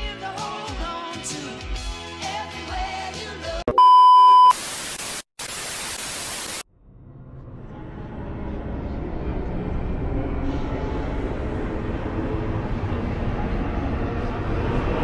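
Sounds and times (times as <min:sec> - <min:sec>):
music: 0:00.0 - 0:03.7
high test-tone beep: 0:03.7 - 0:04.6
television static hiss: 0:04.6 - 0:06.6.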